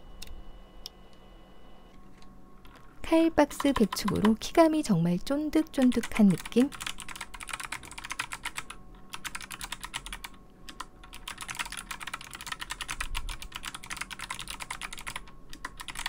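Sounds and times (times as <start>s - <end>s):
fast clicky keyboard typing: 2.7s - 4.5s, 5.7s - 16.0s.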